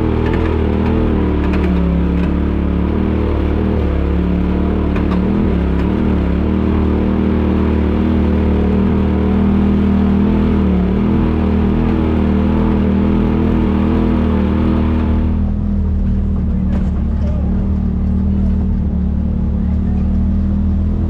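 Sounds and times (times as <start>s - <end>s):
off-road vehicle engine running: 0.0s - 21.0s.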